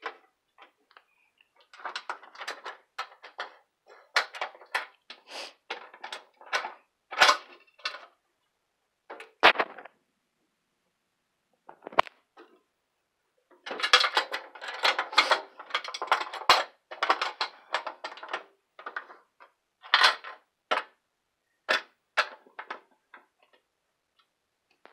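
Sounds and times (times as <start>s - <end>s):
clattering and scraping: 0.0s - 8.2s, 9.1s - 10.0s, 11.6s - 12.6s, 13.5s - 21.0s, 21.7s - 23.7s.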